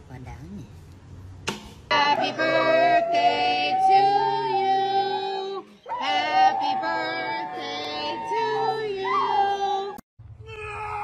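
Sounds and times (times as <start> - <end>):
second lower howl: 2.1 - 11.0
dog howling: 2.2 - 10.0.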